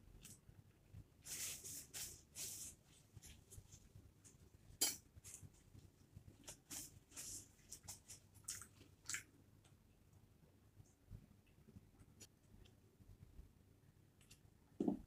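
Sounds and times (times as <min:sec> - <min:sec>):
wet mouth eating sounds: 0:07.8 - 0:09.4.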